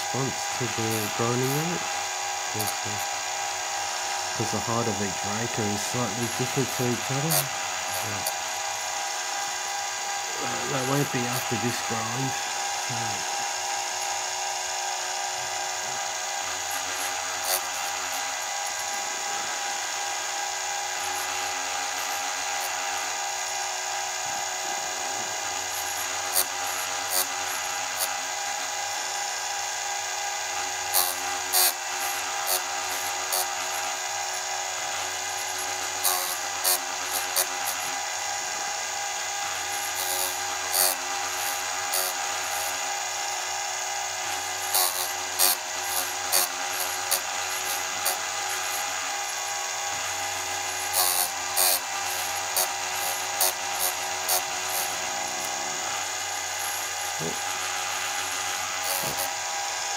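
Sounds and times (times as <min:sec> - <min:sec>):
grinding wheel rasps on chain: 0:00.0 - 0:01.9, 0:02.5 - 0:03.2, 0:04.2 - 0:08.8, 0:10.4 - 0:14.2, 0:30.6 - 0:38.1, 0:39.2 - 0:43.0, 0:44.1 - 0:59.5
sharpener motor whine: 0:00.0 - 0:59.9.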